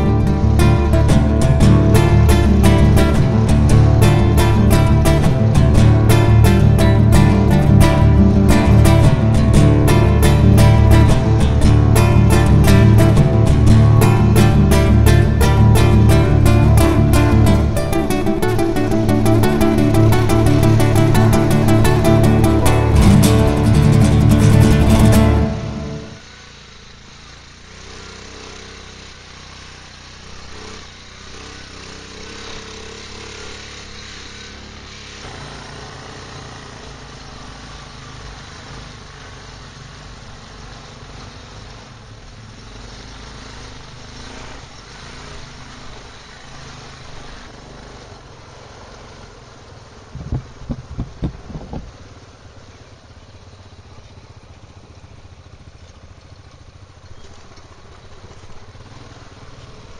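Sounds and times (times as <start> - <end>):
low thumps: 0.0 - 26.2, 50.2 - 52.0
quad bike engine running: 0.0 - 59.9.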